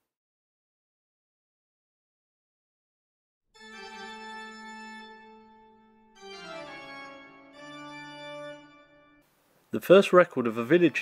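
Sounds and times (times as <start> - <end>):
organ chords: 3.6 - 9.2.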